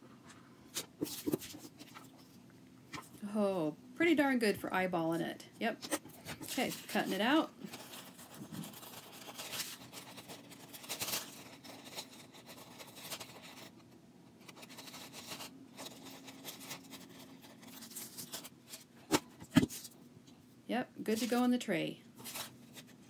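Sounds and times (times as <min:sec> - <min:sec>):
paper rustling: 0:00.7 - 0:02.4, 0:06.2 - 0:13.7, 0:14.4 - 0:20.0, 0:22.2 - 0:23.0.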